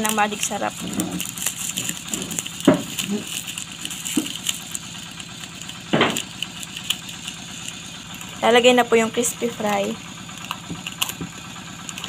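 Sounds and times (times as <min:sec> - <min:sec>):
engine-like hum: 0:00.0 - 0:12.0
rustles: 0:00.0 - 0:12.0.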